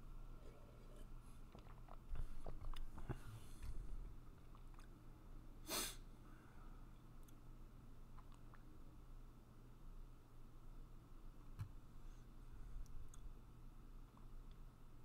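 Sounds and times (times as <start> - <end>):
low steady hum: 0.0 - 15.0
person sniffing: 5.6 - 6.1.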